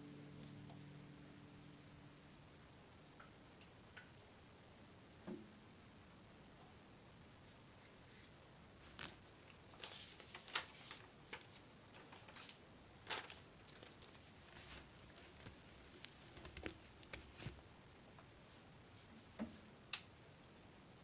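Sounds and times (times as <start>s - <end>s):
faint rustles and light clicks: 7.4s - 20.6s.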